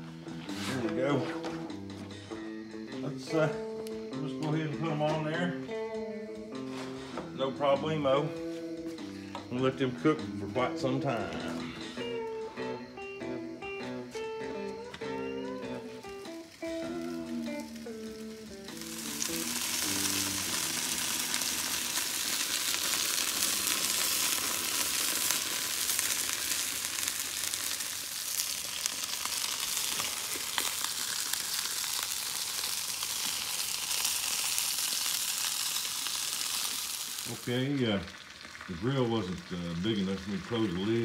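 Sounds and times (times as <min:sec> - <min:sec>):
guitar music: 0:00.0 - 0:27.8
chicken sizzling on grill: 0:06.6 - 0:08.0, 0:08.6 - 0:41.0.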